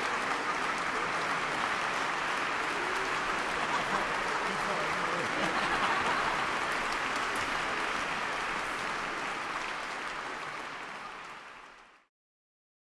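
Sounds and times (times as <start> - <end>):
audience applause: 0.0 - 12.1.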